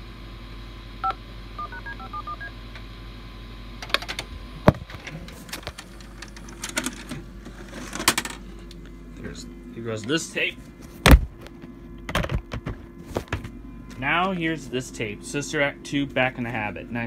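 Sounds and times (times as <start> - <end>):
telephone dialing tones: 1.0 - 2.5.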